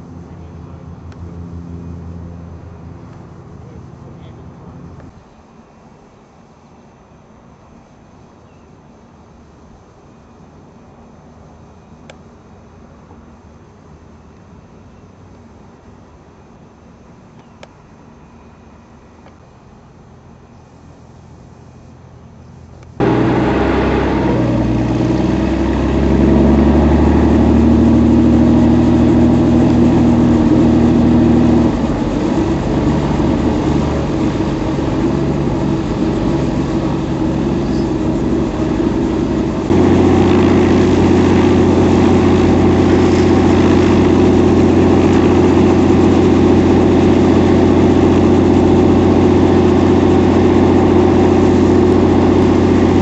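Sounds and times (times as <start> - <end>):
helicopter engine and rotor drone: 23.0 - 53.0.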